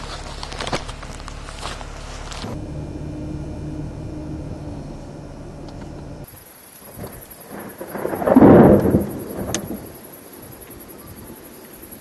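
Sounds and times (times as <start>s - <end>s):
thunder rumbling: 2.6s - 12.0s
sharp thunder crack: 6.9s - 10.0s.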